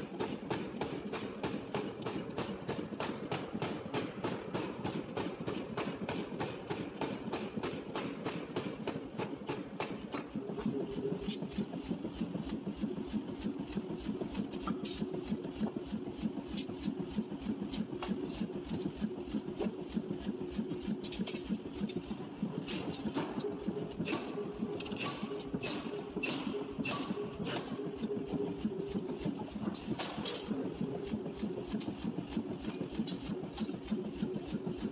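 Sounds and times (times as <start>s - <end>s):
power hammer striking hot steel: 0.0s - 11.7s, 22.7s - 28.5s, 29.3s - 30.8s.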